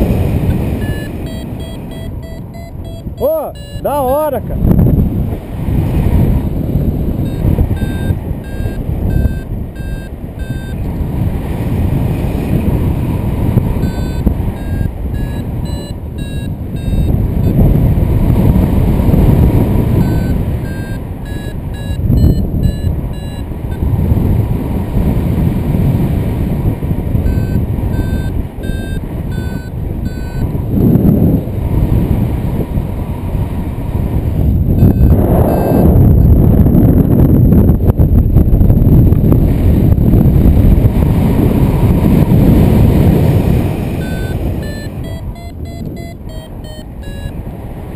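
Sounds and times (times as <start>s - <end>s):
variometer short beeps: 0.0s - 4.4s, 7.2s - 11.0s, 13.8s - 17.8s, 19.8s - 24.0s, 27.2s - 30.6s, 34.4s - 36.4s, 43.7s - 47.5s
strong wind on microphone: 0.0s - 47.9s.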